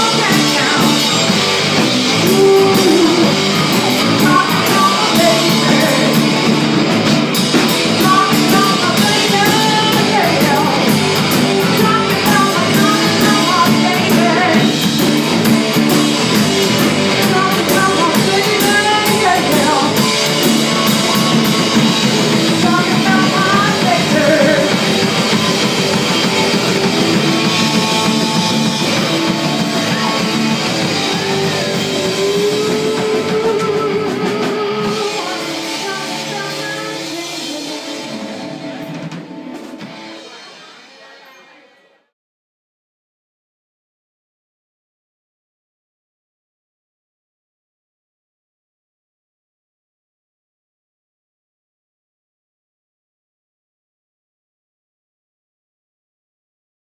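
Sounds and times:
bass guitar: 0.0s - 40.3s
drum kit with cymbals: 0.0s - 41.4s
distorted electric guitar: 0.0s - 42.1s
lead singer singing: 2.1s - 6.3s, 8.0s - 10.9s, 11.6s - 14.7s, 17.1s - 20.0s, 22.5s - 24.9s, 30.9s - 38.4s.

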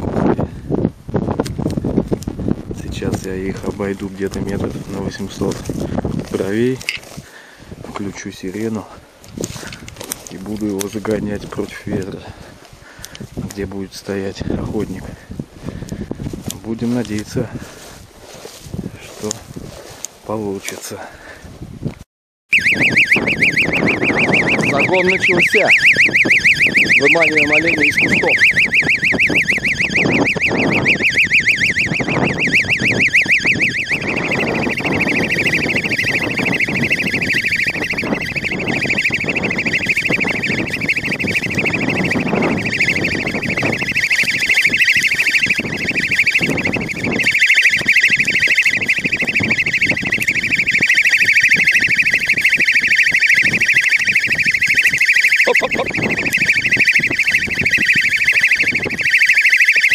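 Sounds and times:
electronic siren warbling: 22.5s - 59.9s.

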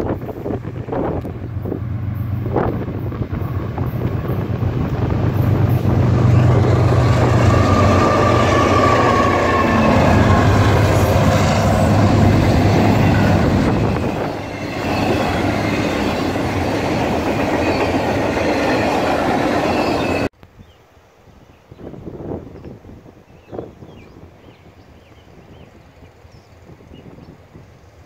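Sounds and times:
diesel locomotive engine drone: 0.0s - 20.3s
steel wheels rumbling: 0.0s - 20.3s.

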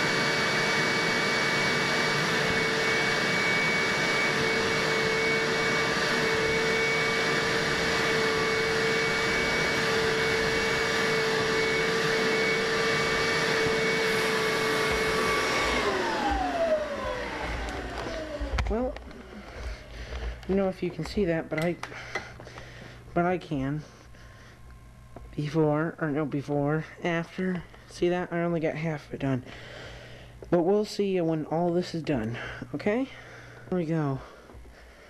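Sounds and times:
upholstery shampooer motor whine: 0.0s - 23.7s.

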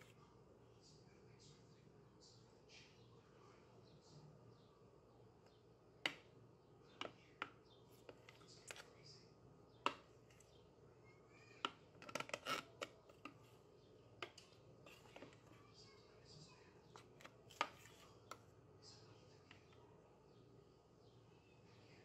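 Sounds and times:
metal spoon scraping plastic bowl: 12.0s - 13.5s, 14.8s - 15.5s.

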